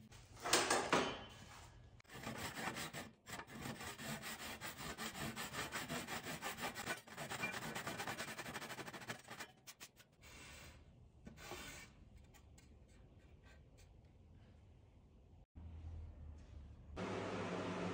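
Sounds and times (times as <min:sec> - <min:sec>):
handsaw cutting wood: 0:02.1 - 0:09.3.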